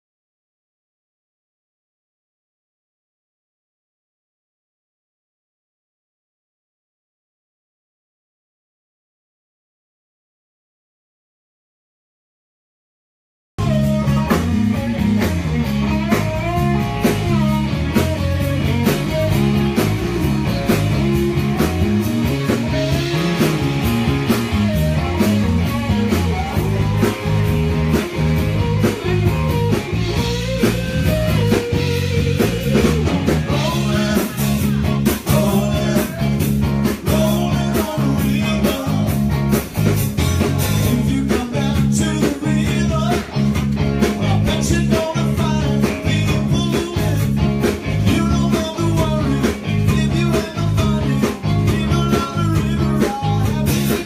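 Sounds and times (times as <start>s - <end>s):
drum kit: 13.6s - 54.0s
electric guitar: 13.6s - 54.0s
rock band playing: 13.6s - 54.0s.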